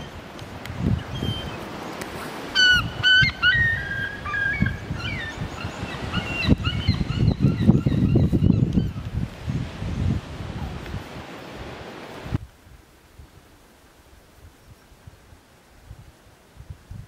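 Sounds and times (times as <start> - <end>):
gulls calling: 0.0 - 9.1
wind rumble on microphone: 0.0 - 13.5, 14.3 - 17.0.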